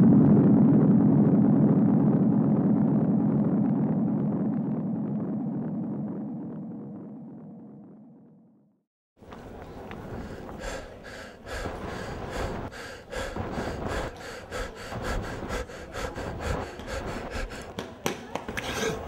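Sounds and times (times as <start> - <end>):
man panting: 9.9 - 17.8.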